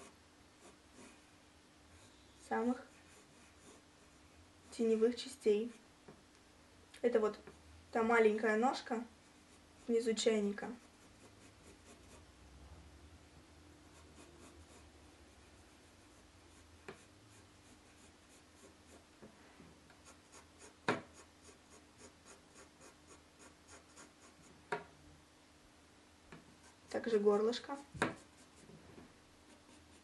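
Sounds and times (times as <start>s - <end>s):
pencil scratching on paper: 0.0s - 1.3s, 2.0s - 5.8s, 9.3s - 12.3s, 13.9s - 19.1s, 19.9s - 24.6s, 26.6s - 28.7s, 29.4s - 30.0s
taps on drawing board: 20.8s - 21.1s, 28.0s - 28.2s.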